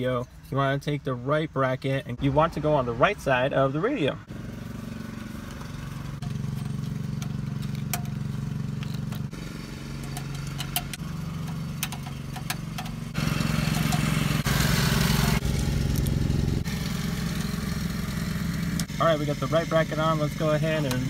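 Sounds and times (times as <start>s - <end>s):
low engine hum: 2.0s - 21.0s
screwdriver clicking on metal: 10.0s - 13.1s.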